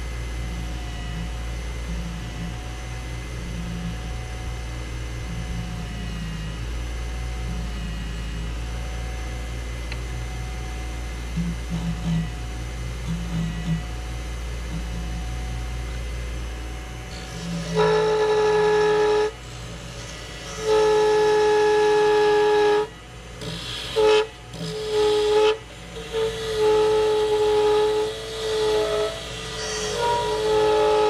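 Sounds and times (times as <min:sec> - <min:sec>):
wood lathe humming: 0:06.6 - 0:31.0
gouge squealing on epoxy: 0:23.4 - 0:31.0.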